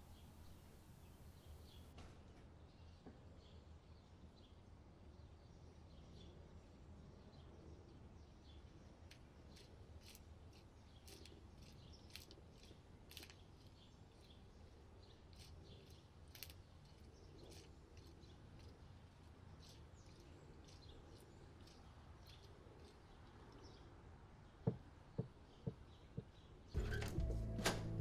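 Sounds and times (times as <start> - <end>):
small birds chirping: 0.0 - 1.9, 2.6 - 28.0.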